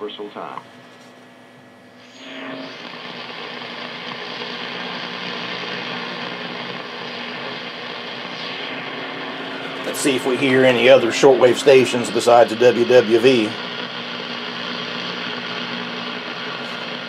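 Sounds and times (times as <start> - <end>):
radio static hiss: 0.0 - 17.0
brief radio tones: 2.0 - 13.7.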